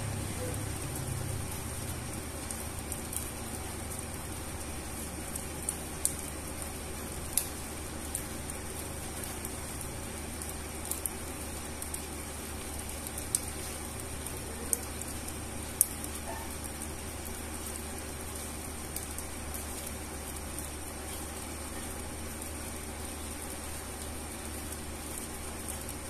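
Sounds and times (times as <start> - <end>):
rain on wet concrete: 0.0 - 26.0.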